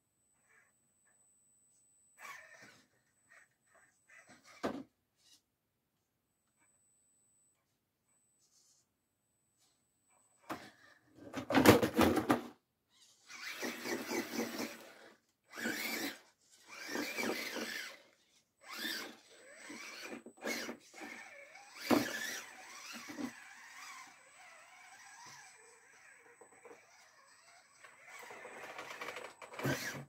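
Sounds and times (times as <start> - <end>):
electric motor and gearbox whining: 13.1 - 30.0
toy truck tipping over clatter: 13.3 - 30.0.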